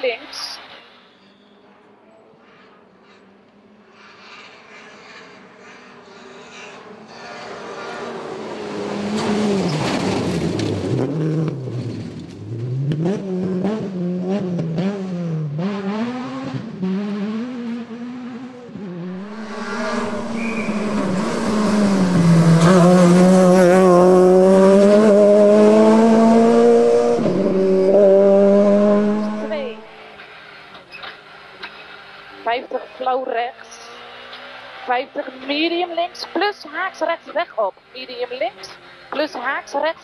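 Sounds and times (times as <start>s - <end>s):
rally car engine revving: 5.0s - 33.0s, 33.6s - 36.4s.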